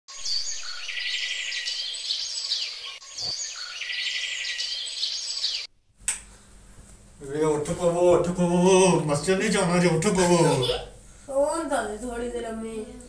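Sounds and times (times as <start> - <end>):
birds chirping and trilling: 0.1 - 5.7.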